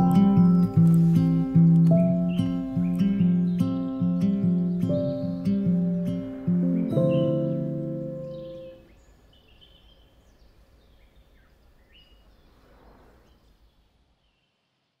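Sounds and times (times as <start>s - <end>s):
acoustic guitar chord strummed: 0.0s - 8.9s.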